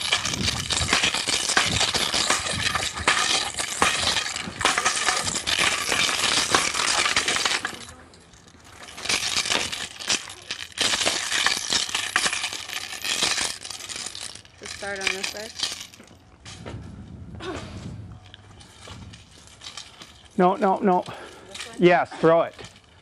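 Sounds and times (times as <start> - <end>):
metal chain links jingling: 7.4 - 16.1.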